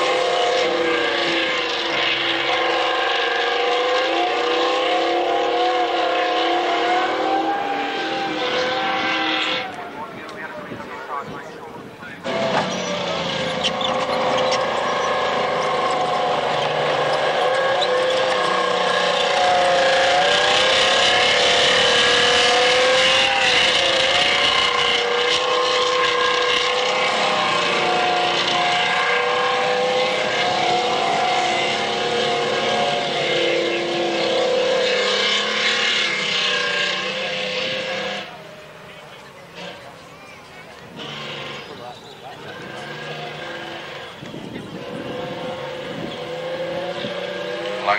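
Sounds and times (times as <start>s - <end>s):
clattering tank tracks: 12.2s - 19.8s.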